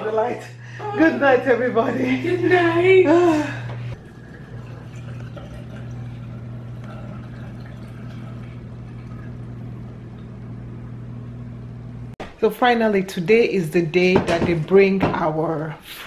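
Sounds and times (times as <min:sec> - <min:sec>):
dishwasher pump hum: 0:00.0 - 0:12.2
water swishing and spraying: 0:04.0 - 0:10.0.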